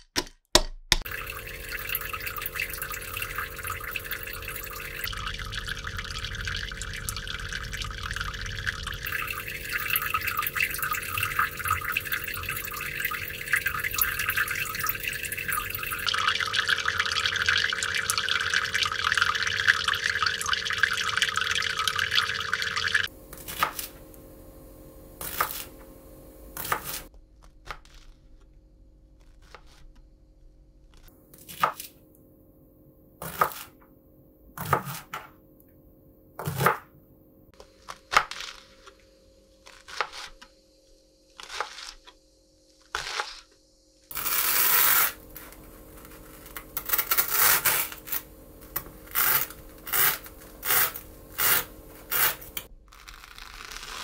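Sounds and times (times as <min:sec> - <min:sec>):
faint steady hum: 0:01.1 - 0:53.8.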